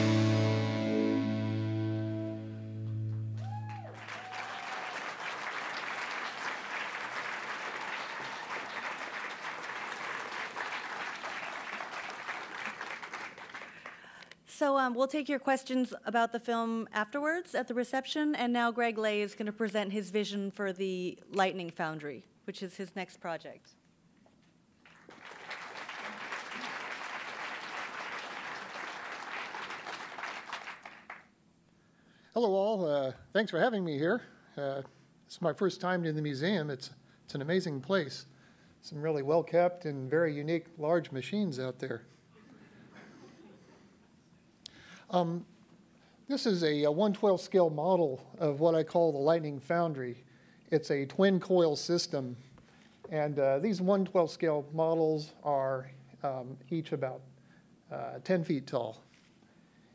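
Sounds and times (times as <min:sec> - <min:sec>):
film music sustained chord: 0:00.0 - 0:03.4
audience applauding: 0:02.8 - 0:14.2, 0:24.8 - 0:31.3.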